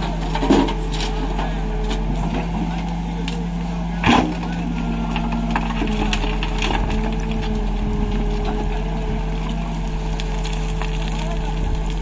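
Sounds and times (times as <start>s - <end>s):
diesel engine under load: 0.0s - 12.0s
steady whine: 0.0s - 12.0s.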